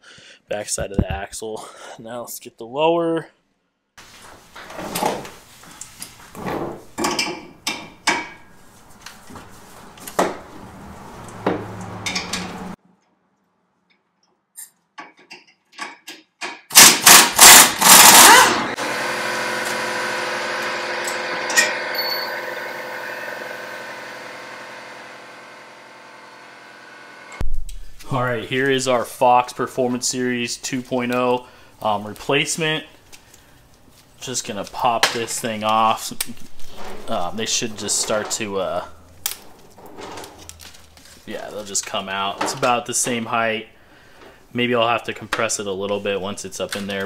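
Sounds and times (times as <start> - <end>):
pneumatic impact wrench hammering: 16.7 - 23.8.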